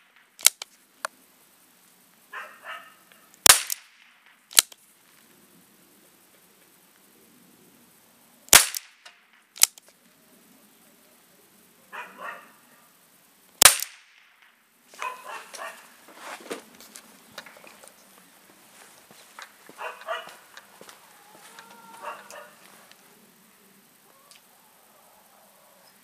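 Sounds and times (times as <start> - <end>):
short crack: 3.4 - 4.8, 8.5 - 10.0, 13.6 - 18.0.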